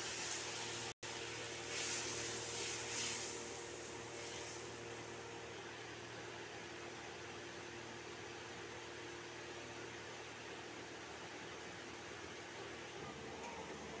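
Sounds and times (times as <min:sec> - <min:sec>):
gravy simmering and sizzling: 0:00.0 - 0:05.6
spatula stirring in a pan: 0:01.4 - 0:04.8.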